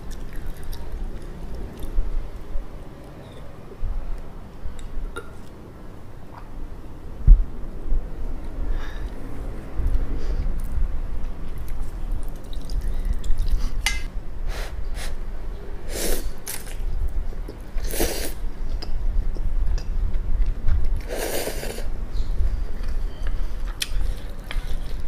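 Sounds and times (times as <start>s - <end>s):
slurping noodles: 21.0s - 21.9s.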